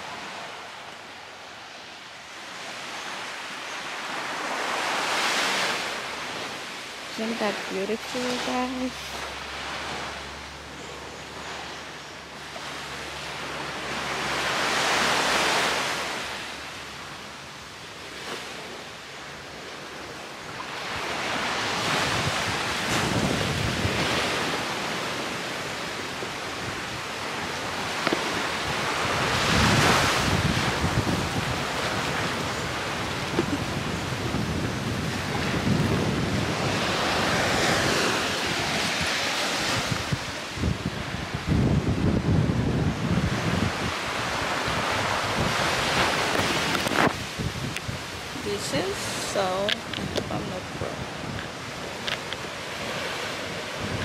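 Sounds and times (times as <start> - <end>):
sea waves breaking on a beach: 0.0 - 54.0
wind buffeting the microphone: 20.5 - 54.0.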